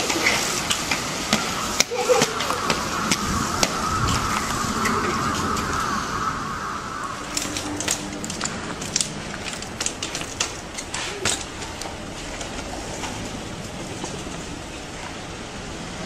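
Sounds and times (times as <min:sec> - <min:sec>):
outdoor background noise: 0:00.0 - 0:16.0
bicycle clicks and knocks: 0:07.3 - 0:14.3.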